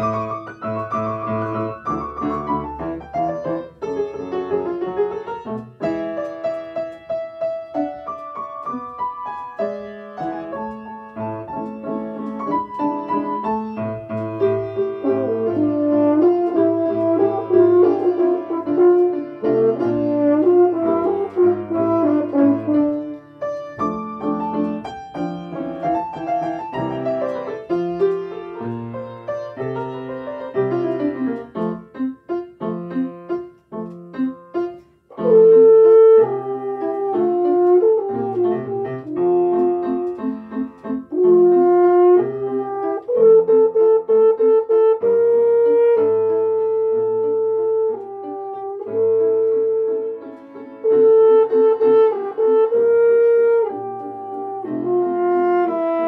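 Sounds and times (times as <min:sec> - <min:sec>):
piano accompaniment: 0:00.0 - 0:56.0
french horn melody: 0:13.1 - 0:25.6, 0:35.2 - 0:56.0.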